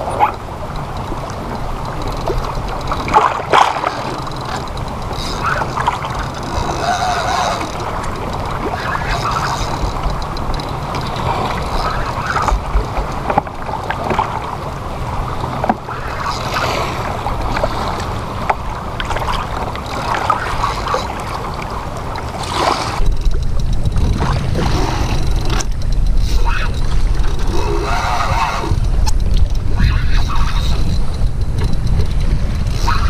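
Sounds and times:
water lapping against kayak hull: 0.0s - 33.0s
wind on microphone: 0.0s - 33.0s.

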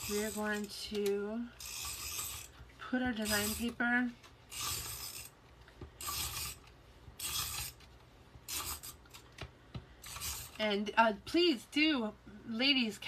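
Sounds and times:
tape runner rasping on cardstock: 3.1s - 3.7s.

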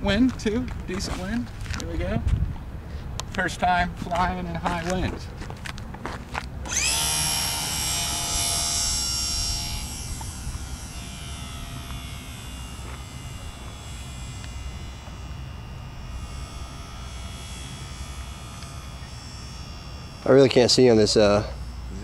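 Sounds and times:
wind rumble on microphone: 0.0s - 5.8s
model plane motor whining: 6.6s - 22.0s.

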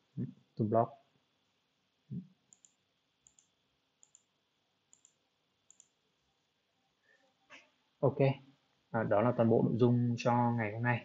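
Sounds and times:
computer mouse clicking: 2.5s - 4.3s, 4.9s - 6.0s.

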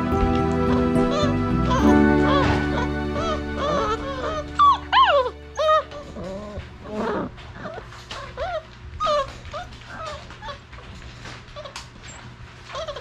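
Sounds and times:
puppies whimpering: 0.2s - 13.0s.

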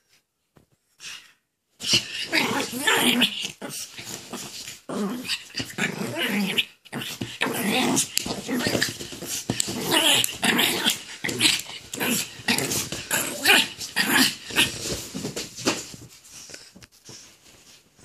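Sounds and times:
dog growling in play: 1.8s - 15.4s.

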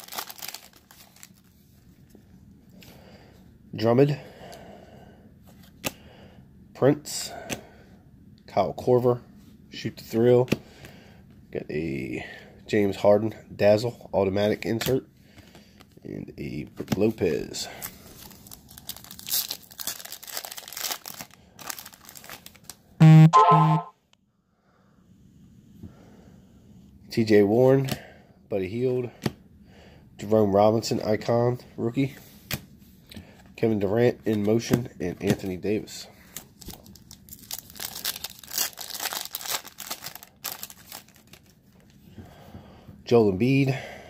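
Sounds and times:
foil wrapper crinkling: 0.0s - 1.5s, 17.8s - 22.8s, 36.3s - 41.6s
loud buzzing tones: 23.0s - 23.9s.

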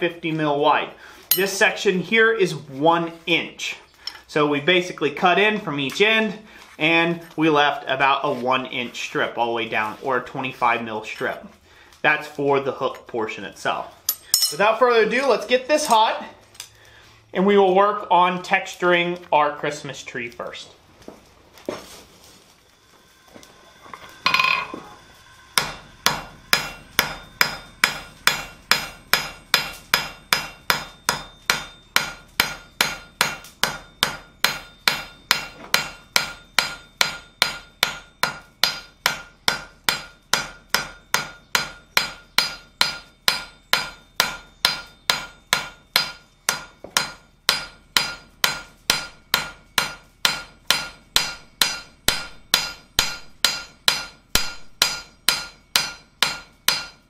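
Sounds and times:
hammer striking hot steel on anvil: 1.3s - 1.8s, 14.1s - 16.0s, 23.4s - 57.0s.

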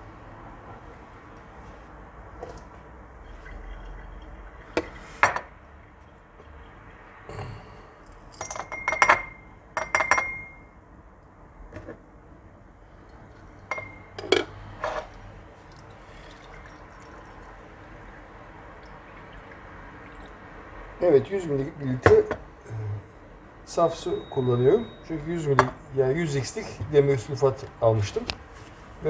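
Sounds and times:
glassware clinking: 8.3s - 10.7s, 13.7s - 15.1s, 16.2s - 17.4s.

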